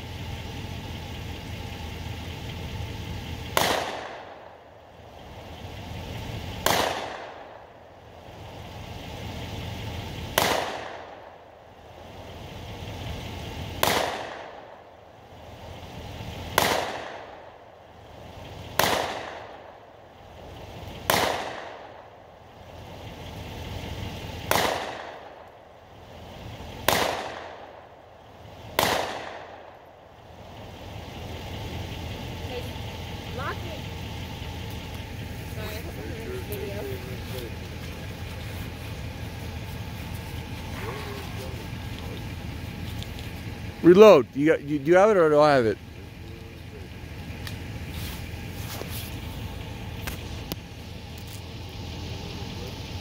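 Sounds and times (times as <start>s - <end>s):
pistol shots: 3.5s - 4.5s, 6.6s - 7.7s, 10.3s - 11.3s, 13.8s - 14.8s, 16.5s - 17.5s, 18.7s - 19.8s, 21.0s - 22.1s, 24.4s - 25.5s, 26.8s - 27.9s, 28.6s - 29.8s.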